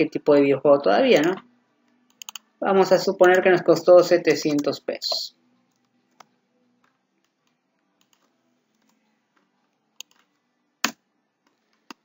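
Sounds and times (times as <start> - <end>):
computer keyboard clicks: 2.1 - 2.4, 10.0 - 11.0.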